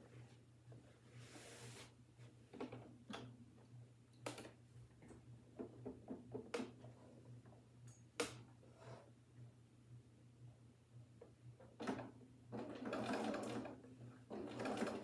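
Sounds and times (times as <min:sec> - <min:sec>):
sewing machine ticking: 0:12.6 - 0:15.0.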